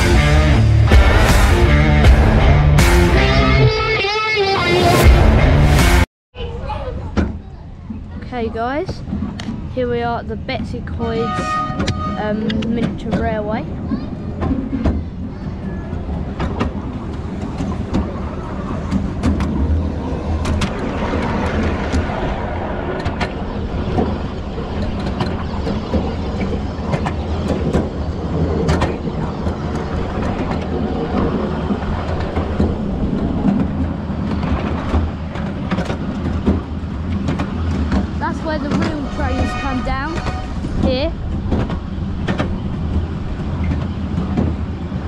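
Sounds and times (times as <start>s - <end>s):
train wheels on rails: 7.1s - 45.0s.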